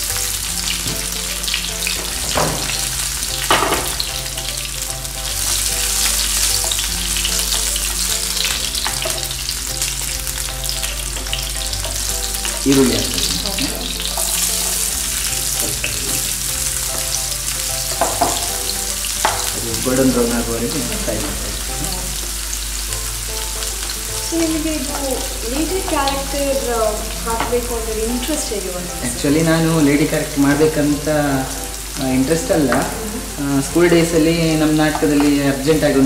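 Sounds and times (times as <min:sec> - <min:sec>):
onion sizzling in oil: 0:00.0 - 0:36.0.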